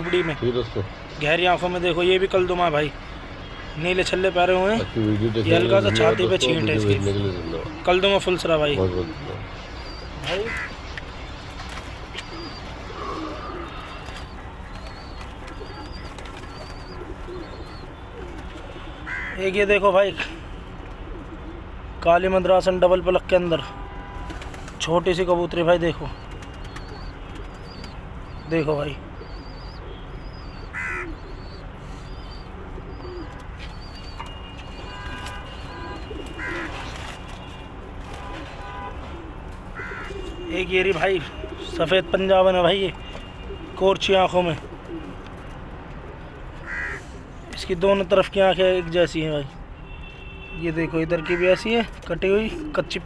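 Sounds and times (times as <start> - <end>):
pigeons cooing: 5.1 - 19.4, 20.2 - 22.0, 26.1 - 42.2, 43.0 - 43.9, 44.5 - 47.4.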